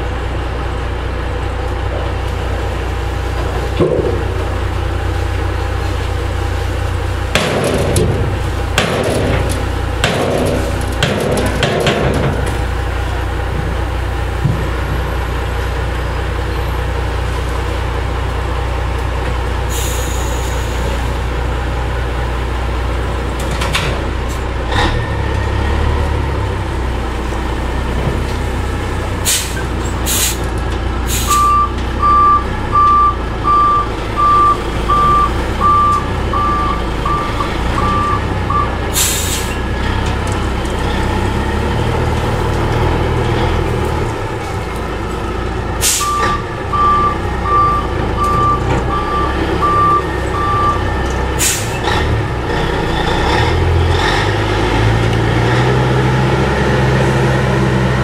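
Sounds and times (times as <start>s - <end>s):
diesel truck engine running: 0.0s - 58.0s
air brake hisses: 19.7s - 21.0s, 29.2s - 30.5s, 31.1s - 31.5s, 39.0s - 39.6s, 51.4s - 51.8s
reversing alarm beeps: 31.3s - 38.7s, 46.0s - 50.9s.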